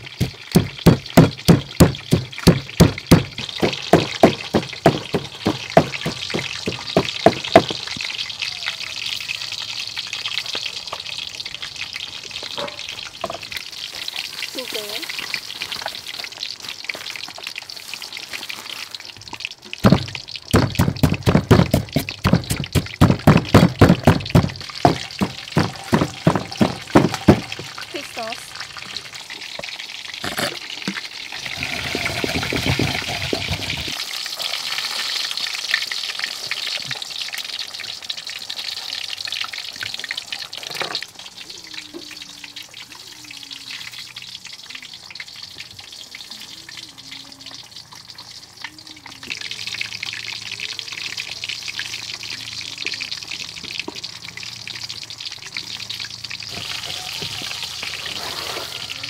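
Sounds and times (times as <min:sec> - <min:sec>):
pestle thudding in wooden mortar: 0:00.1 - 0:07.8, 0:19.8 - 0:27.8
scraping and mashing in bowl: 0:21.3 - 0:27.7.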